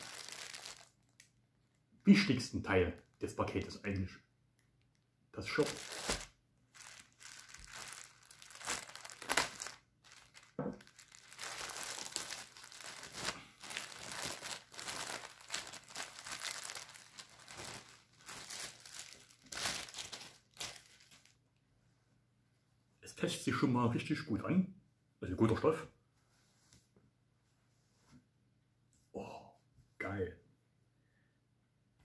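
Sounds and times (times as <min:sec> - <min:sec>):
plastic bag crinkling: 0:00.0 - 0:01.2, 0:05.4 - 0:21.4.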